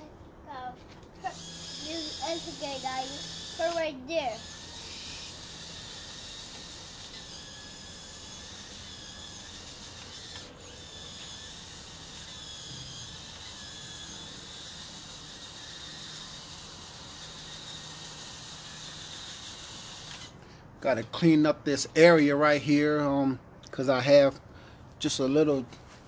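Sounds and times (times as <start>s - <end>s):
toy excavator mechanical whine: 1.2s - 20.4s.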